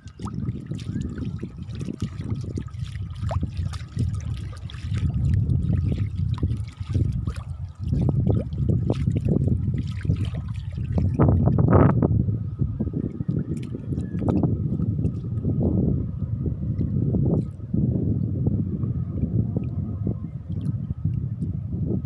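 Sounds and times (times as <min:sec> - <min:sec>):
dog paws splashing in water: 0:00.0 - 0:11.7, 0:13.4 - 0:15.3
low rumble: 0:02.2 - 0:22.0.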